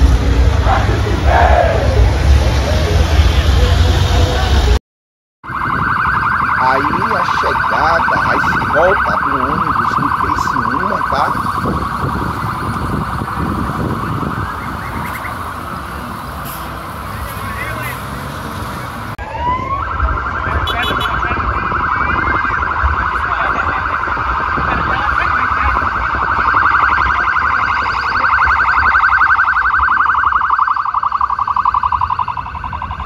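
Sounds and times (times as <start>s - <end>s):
low street noise: 0.0s - 4.8s, 5.5s - 33.0s
siren with fast flutter: 5.4s - 16.0s, 19.2s - 33.0s.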